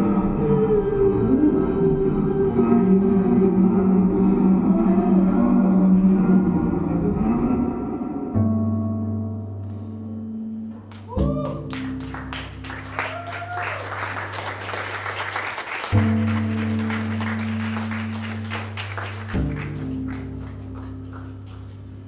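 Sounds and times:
audience applause: 0:10.9 - 0:22.0
plucked low cello notes: 0:15.9 - 0:22.0.

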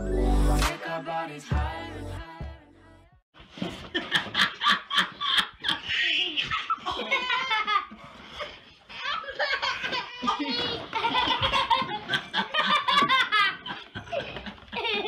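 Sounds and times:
hearty belly laughter: 0:03.7 - 0:15.0.

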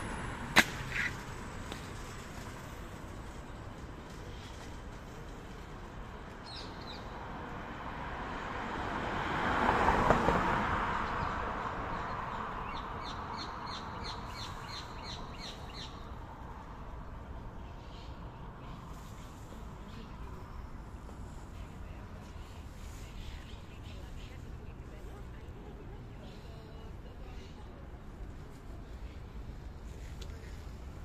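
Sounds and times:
vehicle passing: 0:07.2 - 0:11.9.

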